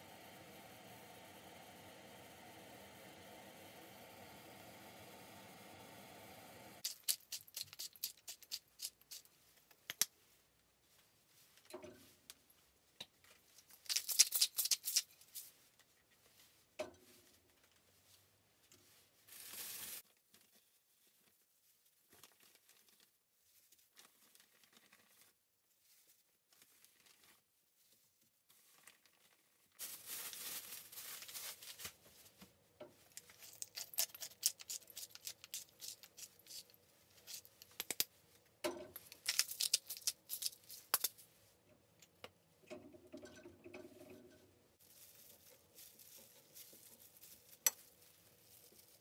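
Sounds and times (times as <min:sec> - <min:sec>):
pepper grinder crunching: 0:06.8 - 0:09.3, 0:13.7 - 0:15.1, 0:33.2 - 0:38.1, 0:39.0 - 0:41.2
handling raw chicken: 0:44.8 - 0:49.0.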